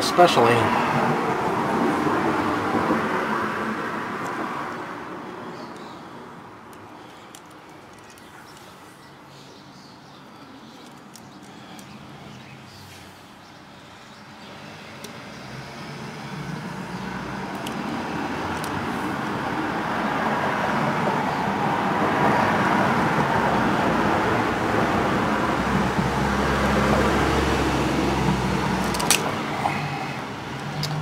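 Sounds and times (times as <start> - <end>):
vehicle passing with low rumble: 14.4 - 31.0
sharp clicks: 17.5 - 18.8, 28.8 - 29.4.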